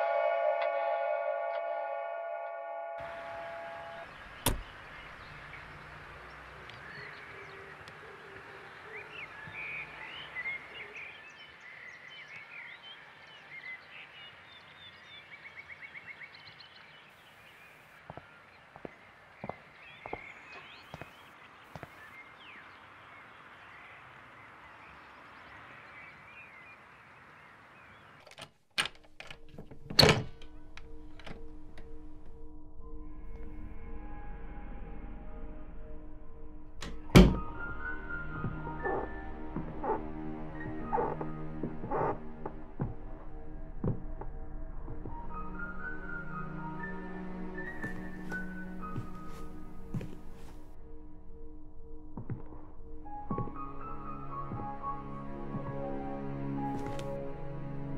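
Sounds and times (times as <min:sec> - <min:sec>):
birds chirping: 0:03.0 - 0:28.3, 0:36.9 - 0:50.8
car door shutting: 0:04.4 - 0:04.8
wooden door pushed open: 0:04.4 - 0:04.8, 0:28.3 - 0:30.5, 0:36.8 - 0:37.6
low drone: 0:30.4 - 0:57.9.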